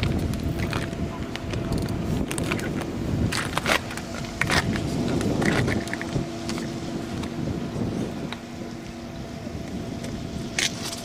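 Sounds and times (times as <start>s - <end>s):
fishing tackle clicks and knocks: 0.0s - 7.3s
low machinery hum: 0.0s - 11.0s.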